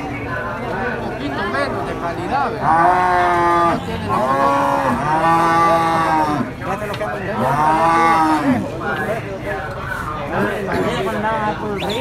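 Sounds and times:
cattle mooing: 2.6 - 6.5, 7.4 - 8.7.

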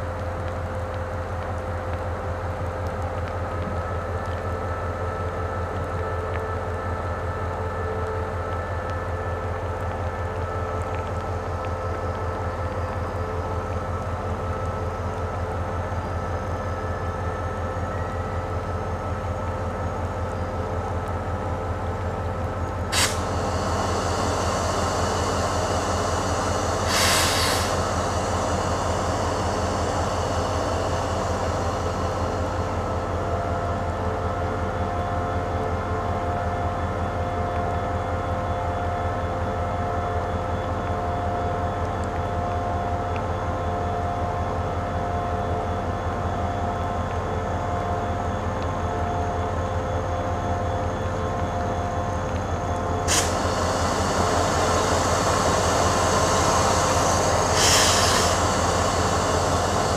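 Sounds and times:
locomotive engine idling hum: 0.0 - 59.9
air hiss: 22.9 - 33.1, 53.0 - 59.9.

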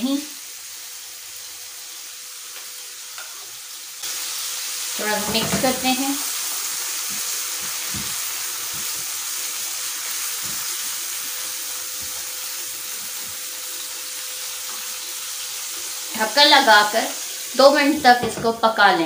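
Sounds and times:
meat sizzling in a frying pan: 0.0 - 19.0
spatula knocking in pan: 7.1 - 9.2.

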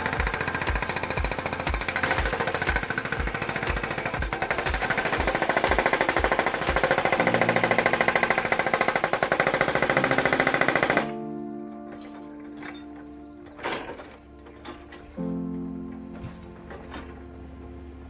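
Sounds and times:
hydraulic breaker hammering rock: 0.0 - 11.1.

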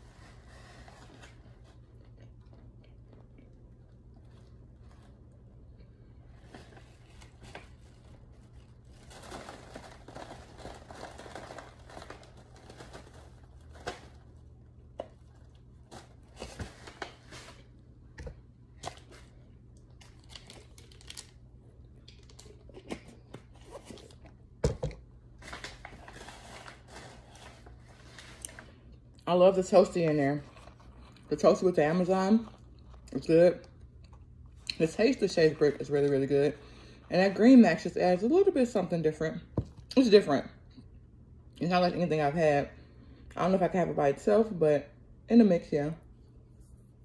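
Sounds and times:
person chewing chalk crunching: 30.4 - 31.3.

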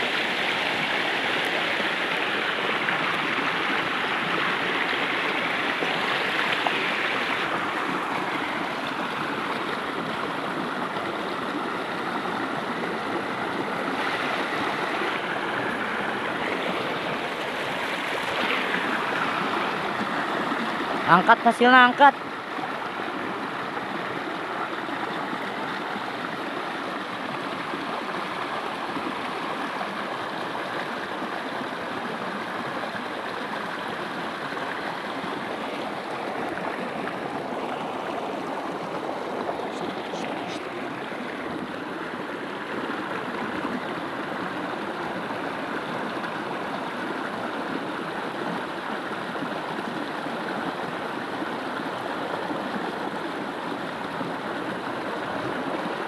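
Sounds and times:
stream rushing over stones: 0.0 - 56.0.

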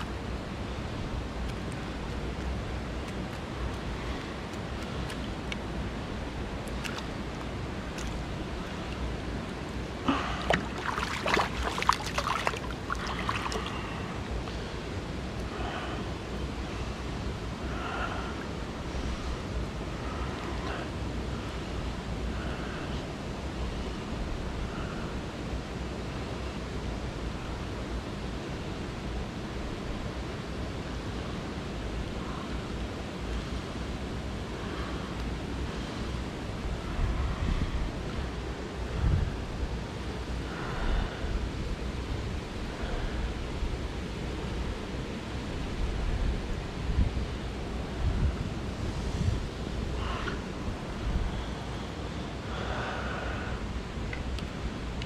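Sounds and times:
mountain stream flowing: 0.0 - 24.7
short irregular splashes: 10.1 - 14.0.

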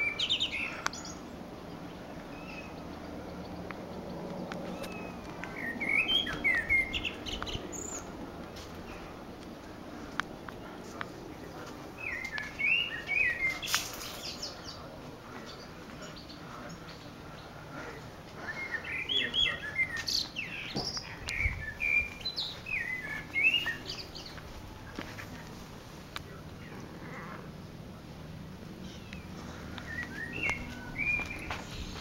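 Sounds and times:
small songbirds chirping: 0.0 - 25.5, 26.1 - 32.0.

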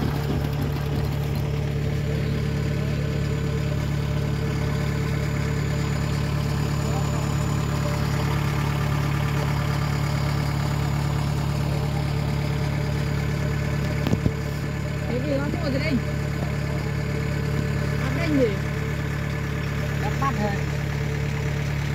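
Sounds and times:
combine harvester working: 0.0 - 21.9
walking tractor diesel engine: 0.0 - 21.9.

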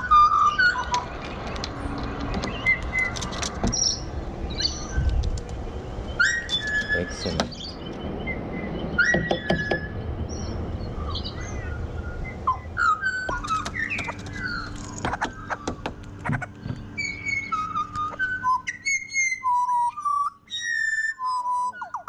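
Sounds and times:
birds singing whistled notes: 0.0 - 22.0
bird clicks: 0.7 - 4.0, 5.0 - 5.6, 13.3 - 16.9.

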